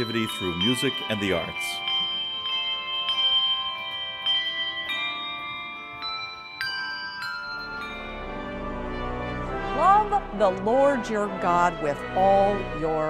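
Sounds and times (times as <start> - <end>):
tuned bells playing a melody: 0.0 - 9.2.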